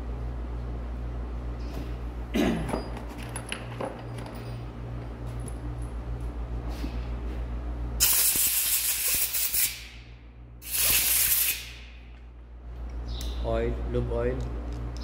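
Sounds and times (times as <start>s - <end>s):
low shop hum: 0.0s - 15.0s
spray nozzle hissing: 8.0s - 9.8s, 10.6s - 11.8s.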